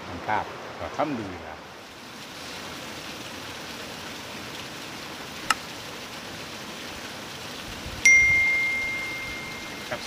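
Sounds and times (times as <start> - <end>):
fast-flowing river rushing: 8.0 - 10.0.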